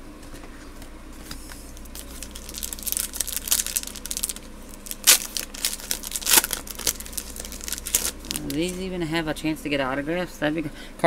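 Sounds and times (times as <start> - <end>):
foil wrapper crinkling: 1.7 - 8.8
loud foil crackles: 1.8 - 8.8.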